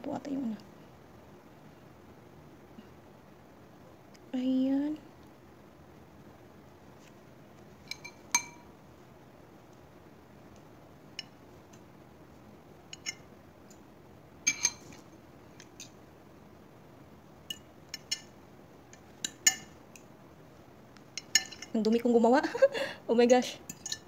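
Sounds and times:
fork clinking on china plate: 7.9 - 8.7, 12.9 - 13.2, 19.2 - 19.7, 21.2 - 21.7, 23.7 - 24.0.

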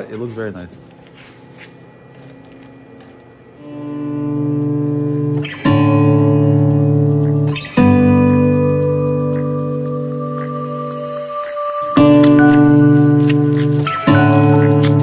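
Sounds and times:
instrumental music with held chords: 3.5 - 15.0.

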